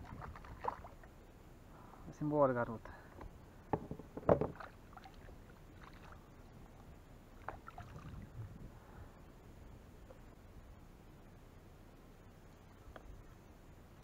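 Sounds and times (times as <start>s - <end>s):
small water splashes: 0.0s - 1.1s, 4.5s - 6.4s, 7.4s - 8.4s
knocks on plastic kayak: 3.7s - 4.6s.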